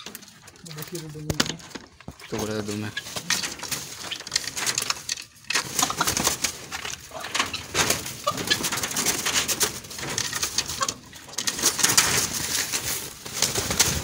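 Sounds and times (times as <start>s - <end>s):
peacock wings flapping: 2.9s - 14.0s.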